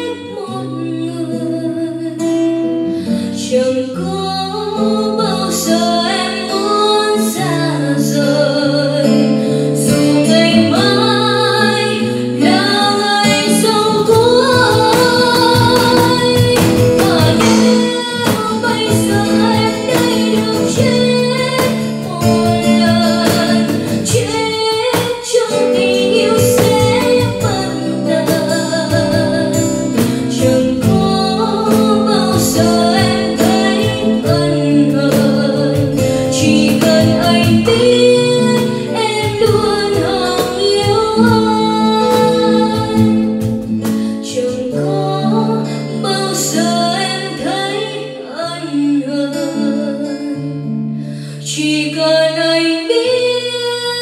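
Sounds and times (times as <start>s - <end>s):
strummed acoustic guitar: 0.0s - 54.0s
woman singing a ballad: 0.0s - 54.0s
cajon drumming: 10.0s - 47.9s.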